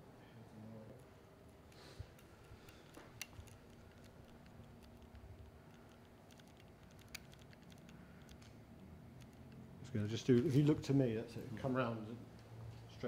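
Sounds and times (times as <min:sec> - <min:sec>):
camera buttons clicking: 0:01.7 - 0:08.5.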